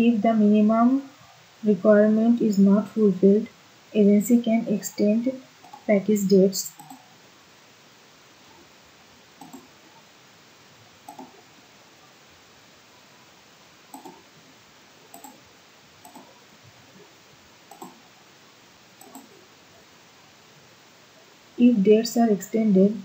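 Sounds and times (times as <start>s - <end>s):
faint steady hiss: 0.0s - 23.0s
computer mouse clicks: 5.6s - 5.9s, 6.7s - 7.1s, 9.4s - 9.7s, 11.0s - 11.4s, 13.9s - 14.2s, 15.1s - 15.4s, 16.0s - 16.3s, 17.7s - 18.0s, 19.0s - 19.4s.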